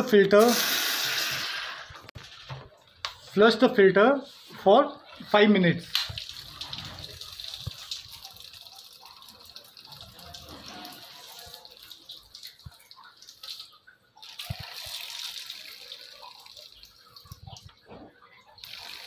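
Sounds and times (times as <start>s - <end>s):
water running through tube: 6.1s - 17.8s.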